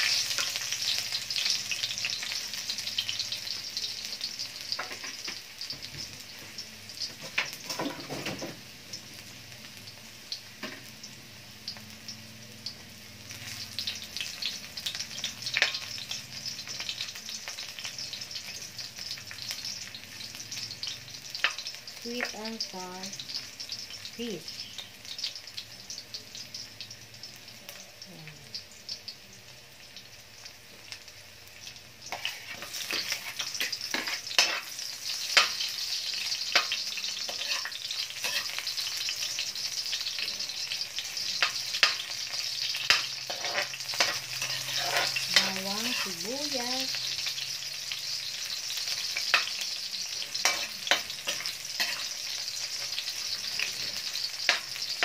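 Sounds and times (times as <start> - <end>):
onion and garlic sizzling in oil: 0.0 - 55.0
metal spatula scraping a pan: 32.1 - 40.0, 41.0 - 46.6, 48.6 - 55.0.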